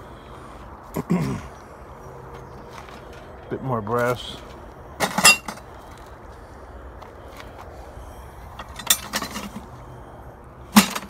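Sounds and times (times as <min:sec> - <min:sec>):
sharp metal clank: 0:05.0 - 0:05.6
scrap metal clinking: 0:05.0 - 0:05.7, 0:08.5 - 0:09.7.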